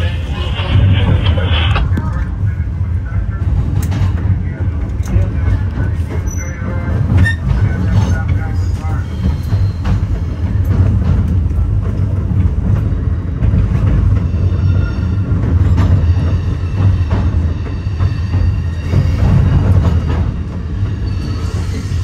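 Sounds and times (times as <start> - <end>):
train wheels rumbling: 0.0 - 22.0.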